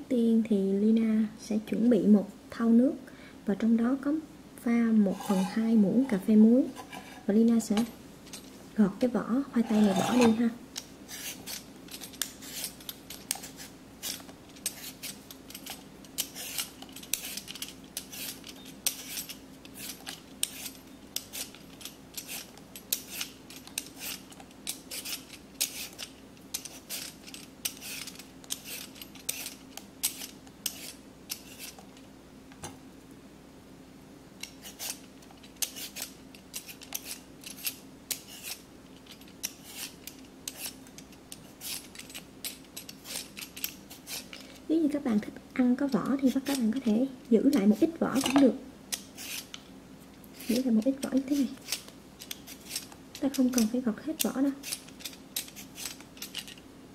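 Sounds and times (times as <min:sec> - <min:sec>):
peeler scraping potato: 0:05.0 - 0:07.9, 0:09.6 - 0:31.9, 0:34.4 - 0:38.6, 0:39.2 - 0:44.6, 0:45.8 - 0:49.6, 0:50.3 - 0:56.5.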